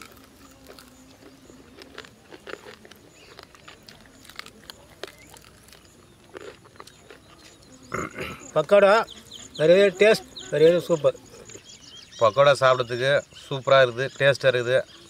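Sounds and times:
person chewing crunchy food: 0:00.0 - 0:09.6.

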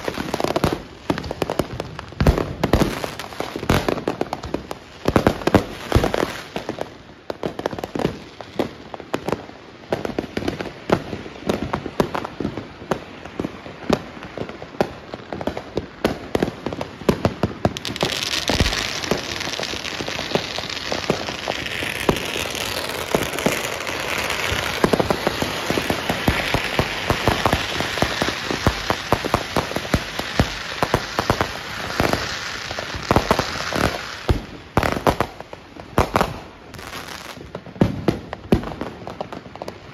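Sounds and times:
fireworks bangs and pops: 0:00.0 - 0:39.9
firecracker strings crackling: 0:16.9 - 0:37.4.

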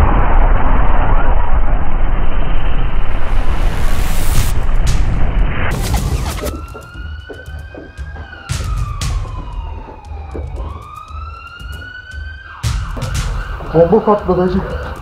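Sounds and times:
loud blast: 0:00.0 - 0:07.2
emergency siren wailing: 0:05.7 - 0:15.0.

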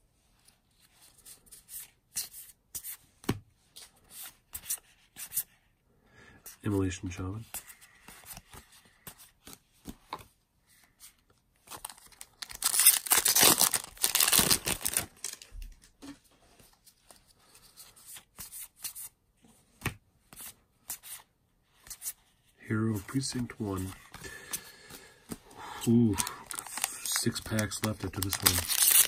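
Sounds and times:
cards clicking and rustling: 0:11.3 - 0:15.9, 0:26.0 - 0:29.0
wrapper tearing open: 0:11.8 - 0:15.5, 0:26.1 - 0:29.0.

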